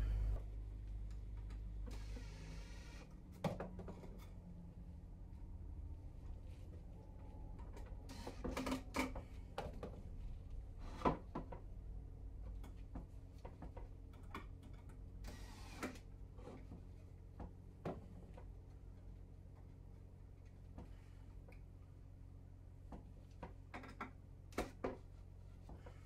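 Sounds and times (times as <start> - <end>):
cordless drill driving screws: 15.2 - 16.0.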